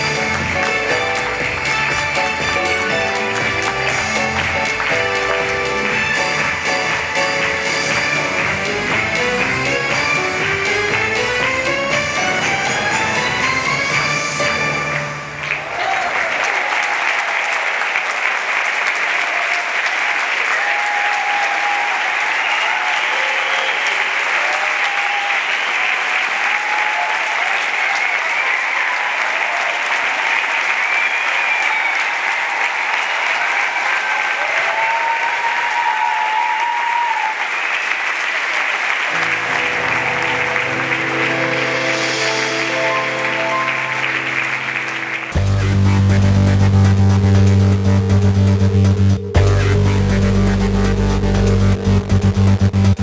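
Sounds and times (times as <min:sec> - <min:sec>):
show music: 0:00.0 - 0:15.9, 0:37.8 - 0:53.0
audience applauding: 0:00.0 - 0:48.7.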